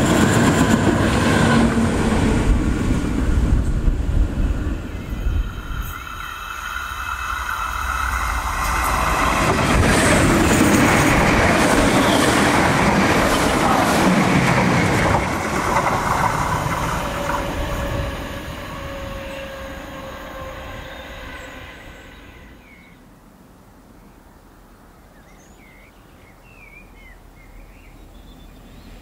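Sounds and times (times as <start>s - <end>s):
train wheel and rail noise: 0.0s - 23.0s.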